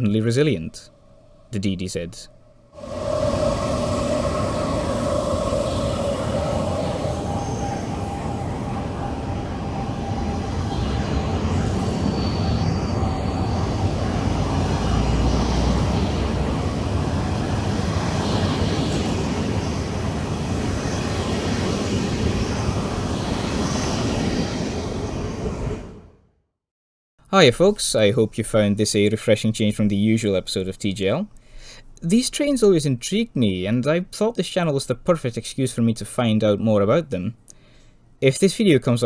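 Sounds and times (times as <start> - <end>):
train rumbling past: 2.8 - 26.2.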